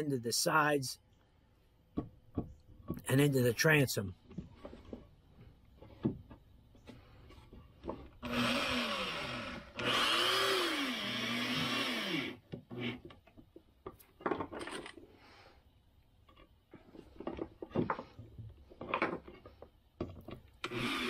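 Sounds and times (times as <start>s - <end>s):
electric drill driving screws: 8.2s - 13.0s, 20.6s - 21.0s.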